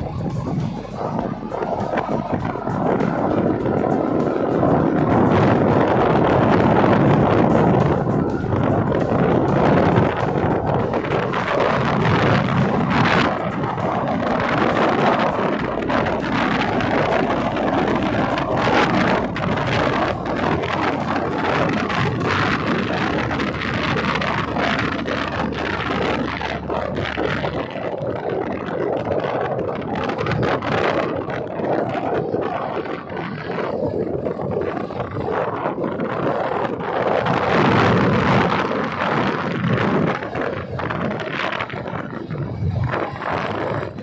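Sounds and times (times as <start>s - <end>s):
motorcycle engine: 0.0s - 44.0s
road noise: 0.0s - 44.0s
wind rush on microphone: 0.0s - 44.0s.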